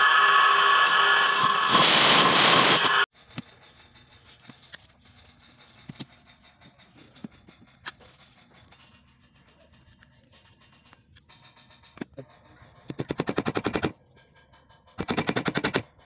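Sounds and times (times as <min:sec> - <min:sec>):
circular saw cutting board: 0:00.0 - 0:03.1.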